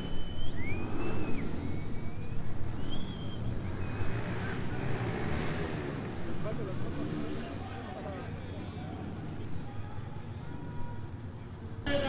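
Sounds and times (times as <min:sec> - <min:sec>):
high gliding whistles: 0:00.0 - 0:04.2
motorcycle engines idling: 0:00.0 - 0:12.0.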